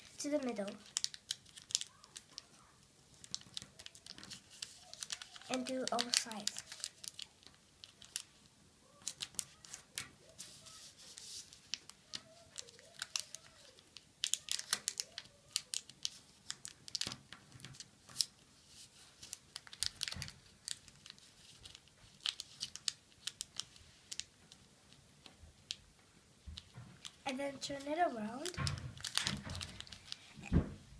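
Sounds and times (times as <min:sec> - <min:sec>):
paper crinkling and crackling: 0:00.0 - 0:30.7.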